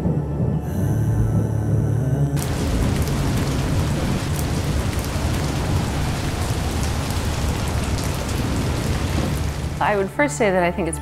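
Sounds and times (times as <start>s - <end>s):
low rumble: 0.0s - 10.1s
rain falling on foliage: 2.4s - 10.2s.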